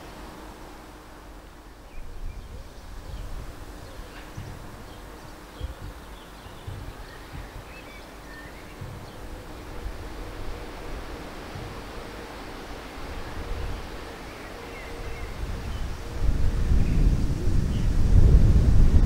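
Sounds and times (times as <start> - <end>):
small birds chirping: 1.8 - 9.7.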